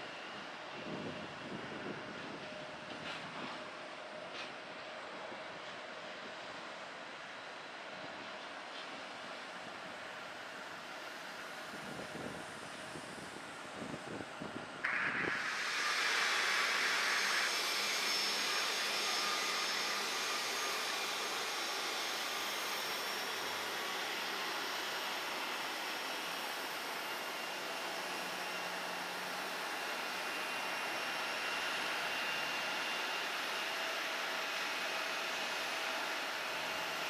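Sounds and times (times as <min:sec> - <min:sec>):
jet engines roaring: 0:14.9 - 0:34.4.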